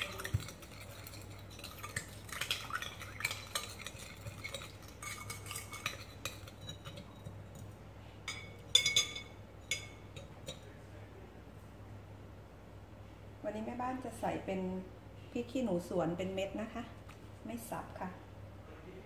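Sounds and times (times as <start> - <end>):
spoon clinking in glass bowl: 0.0 - 7.6, 8.3 - 10.7.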